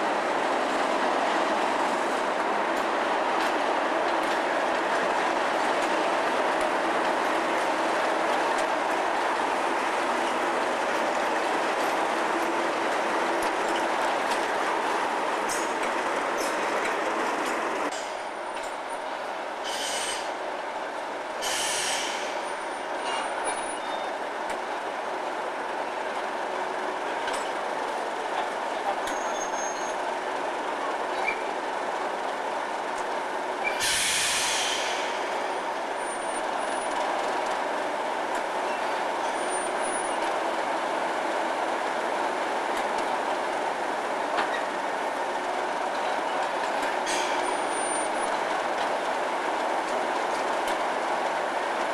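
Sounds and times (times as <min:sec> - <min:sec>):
air hiss bursts: 0:19.6 - 0:20.3, 0:21.4 - 0:22.4, 0:33.7 - 0:35.3.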